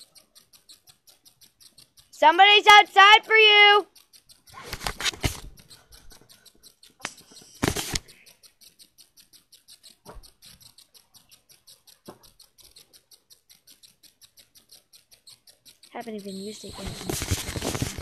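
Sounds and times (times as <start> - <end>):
faint fast even ticking: 0.0 - 18.0
camera handling rustling and bumping: 4.6 - 5.6, 7.0 - 8.1, 16.7 - 18.0.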